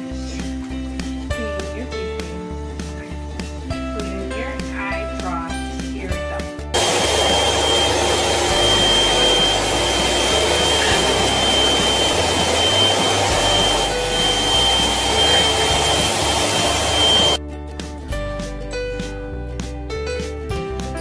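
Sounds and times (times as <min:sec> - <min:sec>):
vacuum cleaner running: 0:06.8 - 0:17.4.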